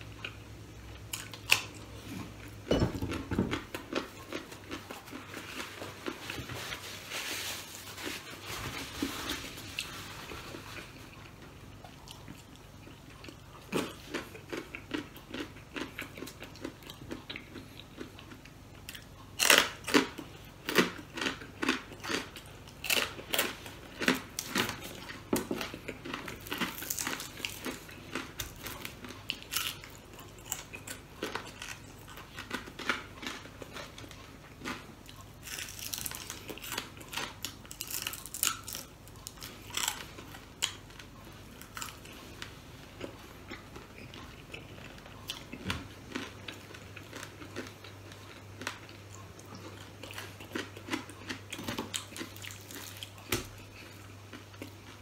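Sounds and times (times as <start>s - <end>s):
crunchy bites and chewing: 11.8s - 42.3s.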